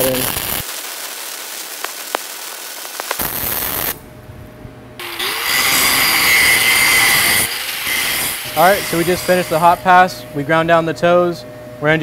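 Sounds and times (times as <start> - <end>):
spatter pops: 0.0 - 4.0
welding arc crackling: 0.0 - 4.0
angle grinder whine: 5.0 - 11.8.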